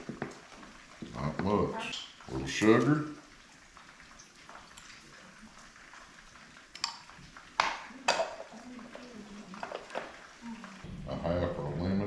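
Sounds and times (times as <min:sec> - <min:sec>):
kitchen utensils knocking: 0:07.6 - 0:08.5.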